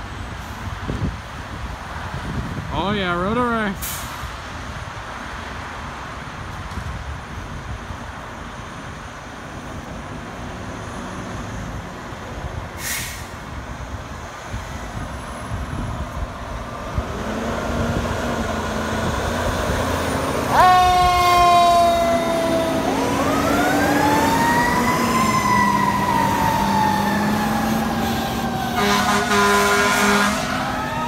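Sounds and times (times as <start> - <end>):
air brake hiss: 3.8 - 4.2, 12.8 - 13.4
truck horn blast: 20.5 - 22.2, 28.7 - 30.6.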